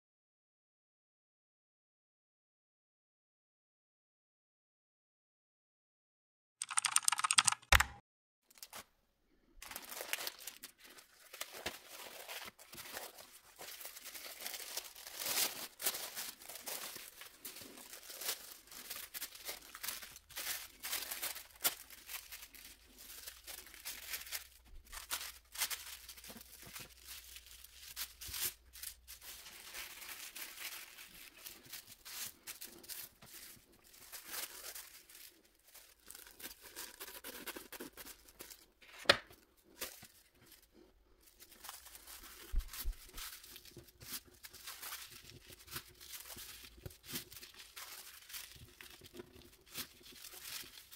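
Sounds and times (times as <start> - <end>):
tissue paper crinkling: 8.5 - 8.9, 9.6 - 50.9.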